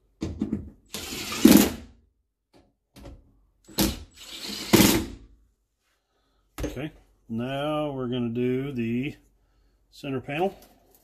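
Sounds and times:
power driver driving screws: 0.9 - 1.8, 3.7 - 5.2.

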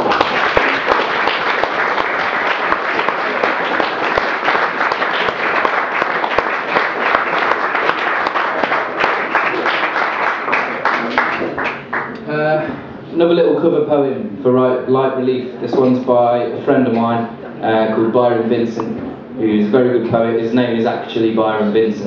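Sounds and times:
audience applauding: 0.0 - 12.2.

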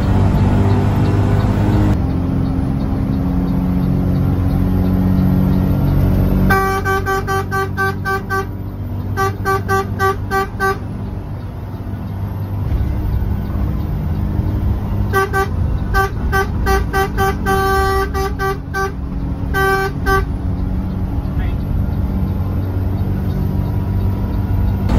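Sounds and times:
bus engine droning: 0.0 - 24.9
bus horn short blasts: 6.4 - 10.9, 15.1 - 20.3.

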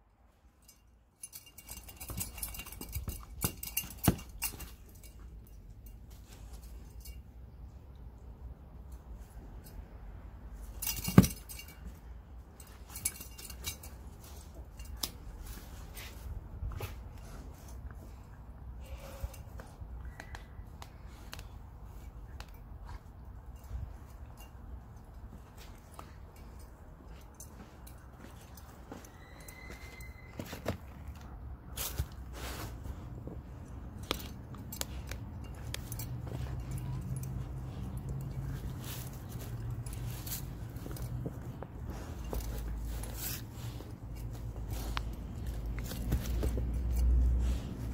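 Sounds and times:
dog mouthing toy clicks and rustles: 1.2 - 5.6.

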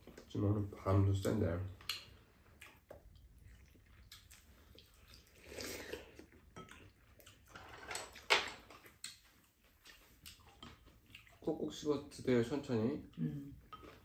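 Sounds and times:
mouth sounds of eating: 1.7 - 7.5.

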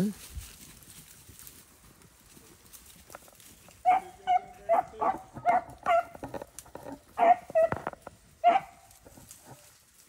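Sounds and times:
dog barking: 3.8 - 6.2, 7.2 - 7.8, 8.4 - 8.8.

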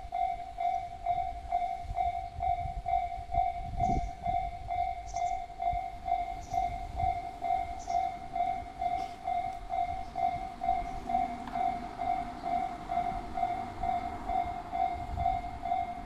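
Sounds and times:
level crossing bell dinging: 4.4 - 16.0.

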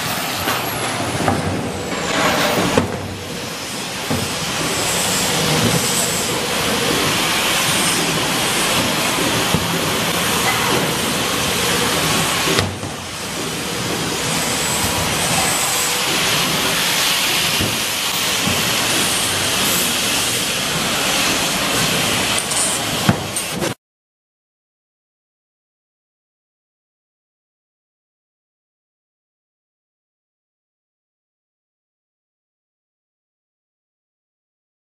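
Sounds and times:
factory machinery hiss: 0.0 - 23.8.

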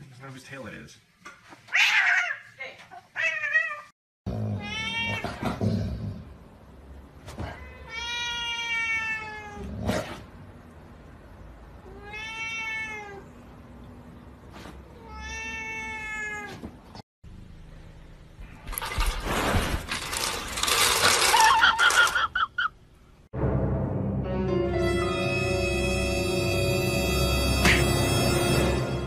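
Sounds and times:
cat meowing: 7.5 - 9.7, 11.8 - 13.3, 15.0 - 16.6.

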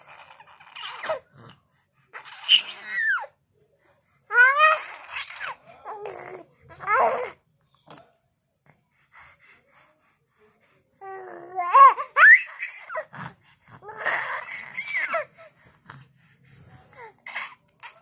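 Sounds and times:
baby laughing and squealing: 0.2 - 1.2, 2.2 - 3.3, 11.6 - 13.1, 13.9 - 15.3, 17.2 - 18.0.

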